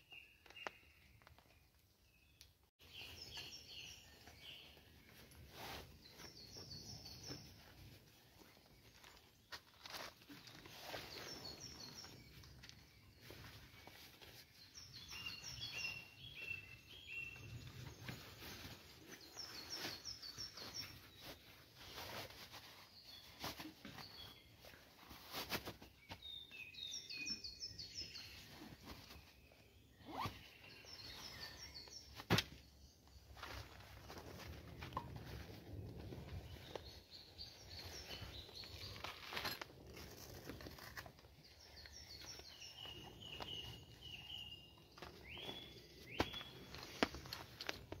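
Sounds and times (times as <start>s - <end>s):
songbirds singing: 0.0s - 9.4s, 10.0s - 25.2s, 26.0s - 48.0s
camping kit rustling and knocking: 17.7s - 26.3s, 33.3s - 37.0s, 37.6s - 48.0s.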